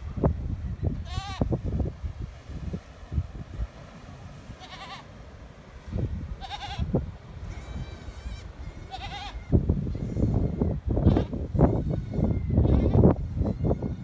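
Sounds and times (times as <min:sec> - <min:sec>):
goat bleating: 0:01.0 - 0:01.4, 0:04.6 - 0:05.1, 0:06.4 - 0:06.9, 0:07.6 - 0:10.3, 0:11.0 - 0:14.0.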